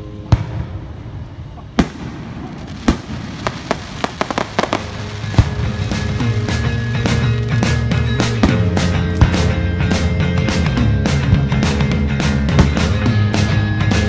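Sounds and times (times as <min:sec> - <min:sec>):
crackling pops of fireworks: 0:00.2 - 0:09.5
fireworks bangs: 0:00.2 - 0:09.5
music with steady beat: 0:02.8 - 0:14.0.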